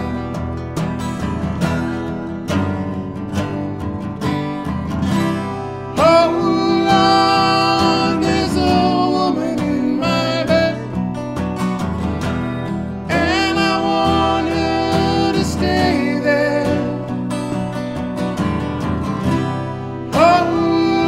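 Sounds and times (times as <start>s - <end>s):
acoustic guitars strumming: 0.0s - 21.0s
man singing: 5.9s - 11.1s, 13.0s - 17.4s, 20.1s - 21.0s.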